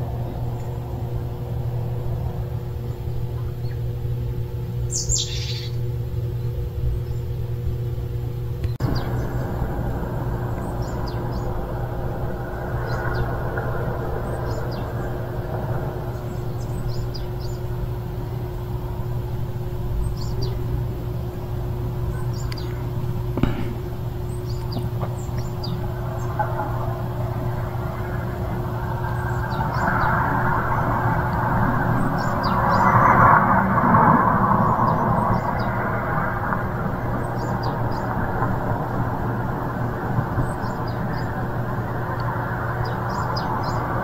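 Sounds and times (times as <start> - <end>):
broad rushing noise: 0.0 - 3.0, 8.7 - 44.0
low street hum: 0.0 - 44.0
small birds chirping: 2.8 - 7.4, 8.5 - 9.6, 10.4 - 11.8, 14.2 - 30.9, 32.0 - 33.0, 37.0 - 38.1, 42.8 - 43.9.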